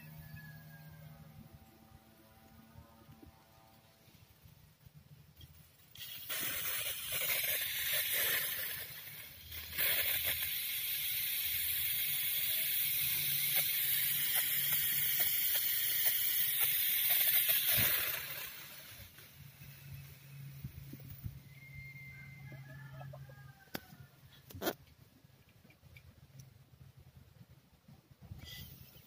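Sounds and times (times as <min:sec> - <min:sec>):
aerosol spray hissing: 0:05.9 - 0:20.9.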